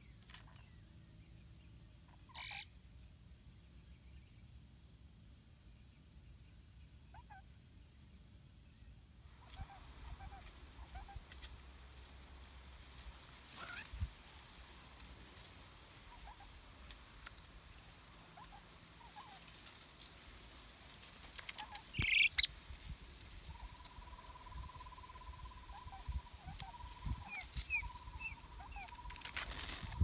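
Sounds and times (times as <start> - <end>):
birds calling: 21.6 - 22.5
low bird trill: 21.9 - 22.5
short high chirps: 22.0 - 22.5.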